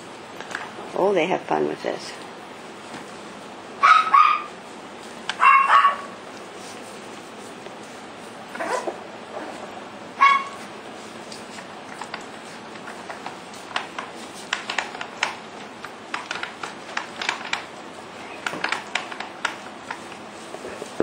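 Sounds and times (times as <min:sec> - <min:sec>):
puppies' claws clicking and tapping: 0:10.3 - 0:21.0.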